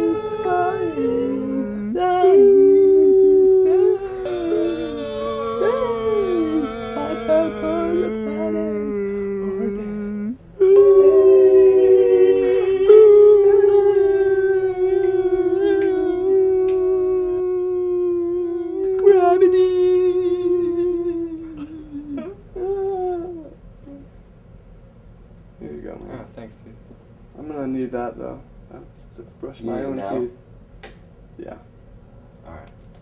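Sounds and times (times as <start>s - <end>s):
man wailing: 0.0s - 23.4s.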